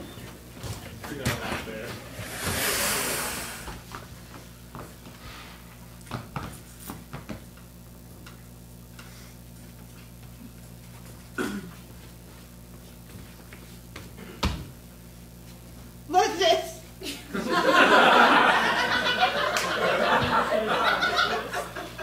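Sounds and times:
low electrical hum: 0:00.0 - 0:22.0
short falling sweep: 0:02.2 - 0:03.8.

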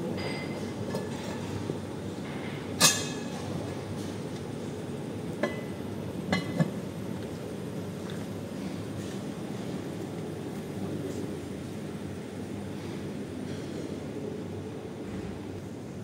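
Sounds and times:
metal tongs clinking on pots: 0:02.8 - 0:03.4.

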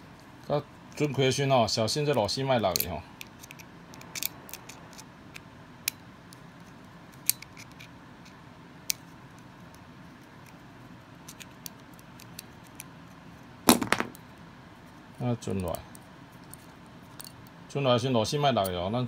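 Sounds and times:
small metallic screw clicks: 0:02.7 - 0:06.4, 0:07.1 - 0:07.9, 0:16.4 - 0:17.5.

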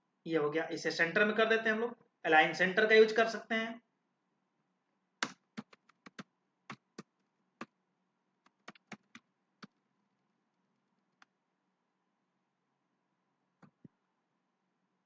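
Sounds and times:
keyboard typing: 0:05.2 - 0:07.8, 0:08.4 - 0:09.8.

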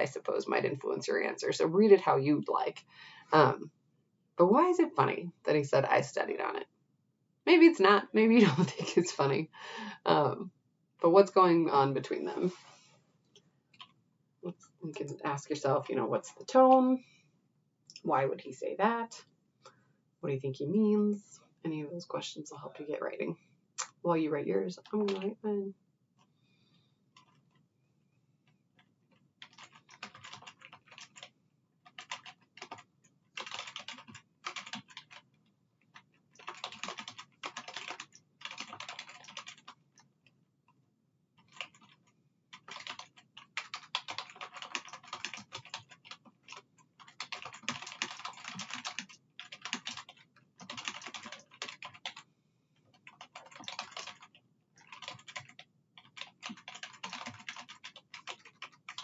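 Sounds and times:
typing on computer keyboard: 0:29.1 - 0:40.1, 0:41.4 - 0:52.2, 0:52.9 - 0:59.0.

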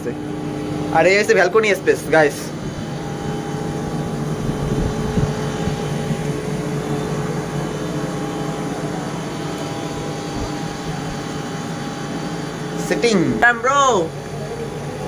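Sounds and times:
steady mechanical hum: 0:00.0 - 0:15.0
low rumbles: 0:02.4 - 0:13.5.

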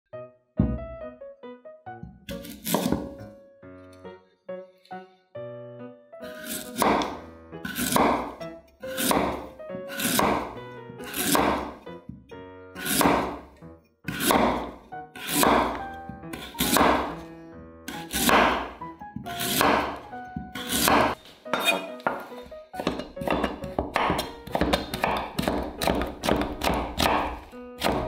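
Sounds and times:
knife slicing sweet potato: 0:02.3 - 0:03.3, 0:06.3 - 0:11.8, 0:12.8 - 0:17.3, 0:17.9 - 0:28.0
knife knocking on wooden board: 0:20.4 - 0:27.2.

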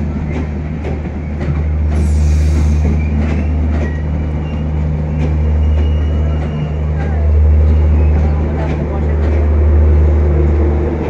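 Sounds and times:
low train rumble: 0:00.0 - 0:11.0
train wheels clicking over rail joints: 0:00.0 - 0:11.0.

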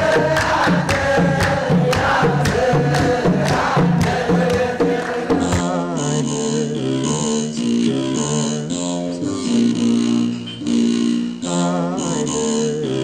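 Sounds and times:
hand claps: 0:00.0 - 0:05.7
drum beating: 0:00.0 - 0:05.8
crowd chanting: 0:00.0 - 0:06.6.

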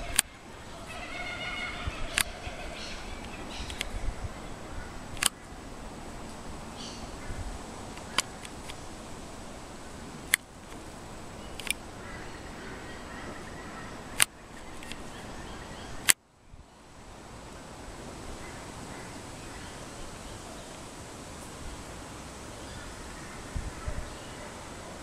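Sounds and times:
sharp clicks: 0:00.0 - 0:00.3, 0:02.1 - 0:02.3, 0:03.2 - 0:04.0, 0:05.1 - 0:05.4, 0:07.9 - 0:08.8, 0:10.2 - 0:10.9, 0:11.5 - 0:11.8, 0:14.2 - 0:15.2
faint bird chirps: 0:00.0 - 0:05.6, 0:11.3 - 0:16.9, 0:21.6 - 0:25.0.

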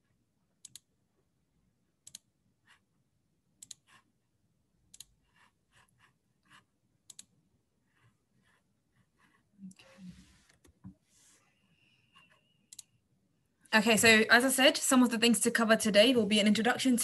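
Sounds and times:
computer mouse clicks: 0:00.6 - 0:00.9, 0:02.0 - 0:02.3, 0:03.6 - 0:04.0, 0:04.9 - 0:05.2, 0:07.0 - 0:07.3, 0:12.2 - 0:13.0.

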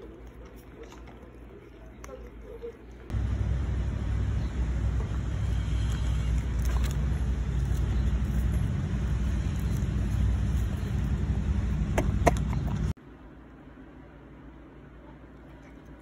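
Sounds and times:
low wind rumble: 0:03.1 - 0:13.0.

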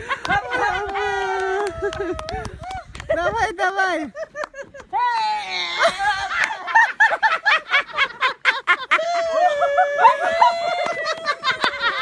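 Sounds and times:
elderly women laughing: 0:00.0 - 0:02.8, 0:04.1 - 0:05.0, 0:05.7 - 0:12.0.

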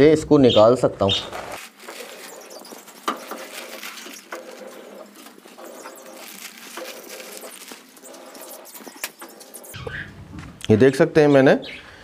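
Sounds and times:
seed husks shifting on plastic: 0:01.0 - 0:09.6
plastic sheet crinkling: 0:01.2 - 0:09.8.

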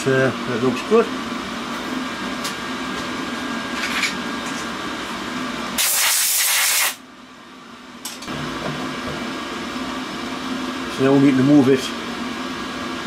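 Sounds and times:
compressed air hiss: 0:05.8 - 0:07.0
milling machine hum: 0:07.1 - 0:13.0.

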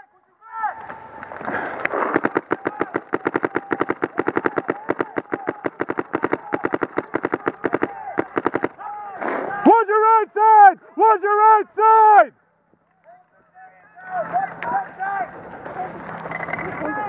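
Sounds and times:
paintball marker firing rapidly: 0:01.9 - 0:08.9.

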